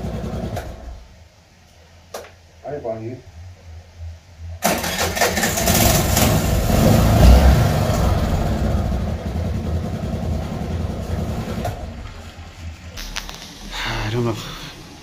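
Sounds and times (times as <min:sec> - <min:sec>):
vehicle engine running loudly: 0:05.6 - 0:12.9.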